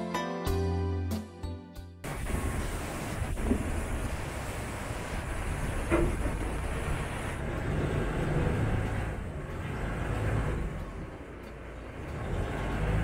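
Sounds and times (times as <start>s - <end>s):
rushing wind: 2.0s - 11.1s
boat engine low rumble: 2.0s - 13.0s
water noise: 2.0s - 13.0s.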